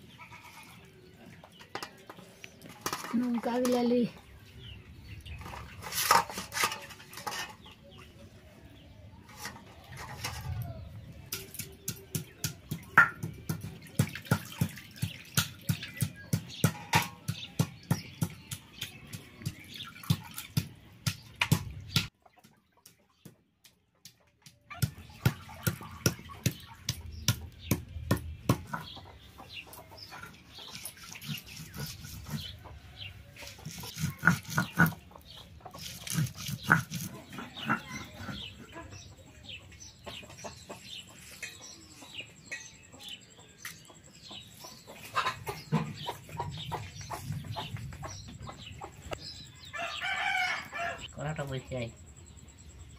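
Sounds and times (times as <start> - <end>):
stone roller knocking and scraping: 1.6 - 4.0, 5.4 - 7.8, 11.3 - 22.1
hens clucking: 28.6 - 49.2.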